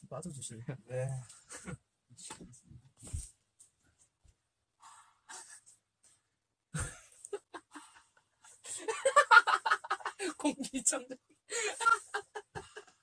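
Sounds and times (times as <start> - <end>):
stifled breathy laughter: 1.5 - 1.8, 6.8 - 10.5, 11.5 - 13.0.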